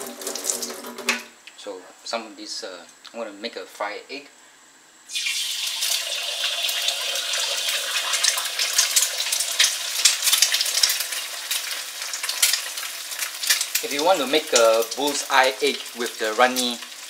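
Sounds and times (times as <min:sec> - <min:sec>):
egg sizzling in hot oil: 0:00.0 - 0:01.2, 0:05.1 - 0:17.0.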